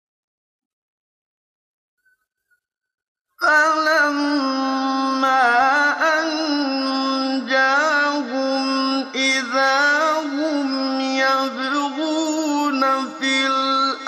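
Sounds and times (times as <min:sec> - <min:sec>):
man chanting melodically: 0:03.4 - 0:14.0.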